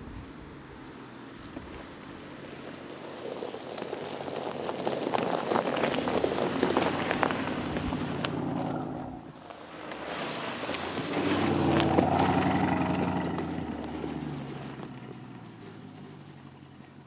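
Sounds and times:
tyres crunching over dirt: 1.3 - 17.0
car engine running: 6.0 - 9.4, 10.9 - 17.0.

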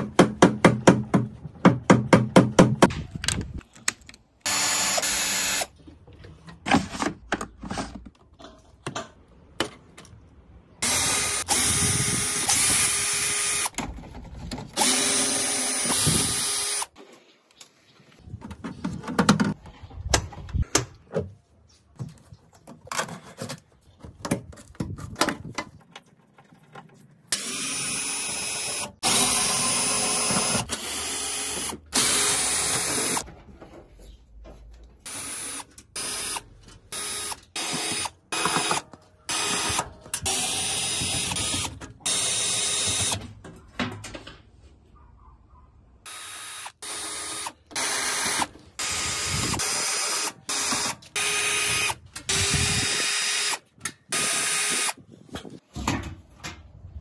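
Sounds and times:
cordless drill bursts: 4.5 - 5.7, 10.8 - 13.7, 14.8 - 16.9, 27.4 - 33.2, 35.1 - 43.2, 46.1 - 55.0.

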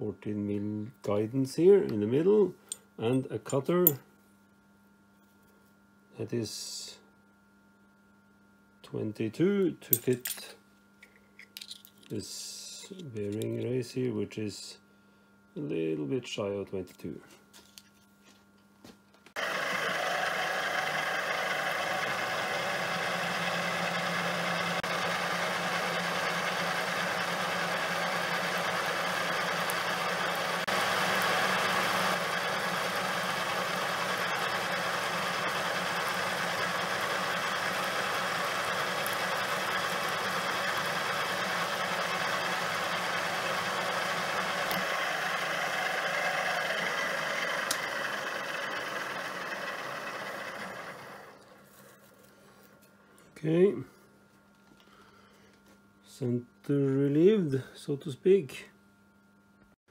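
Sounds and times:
drill press motor hum: 19.3 - 51.9
cutter cutting steel: 19.4 - 50.3.

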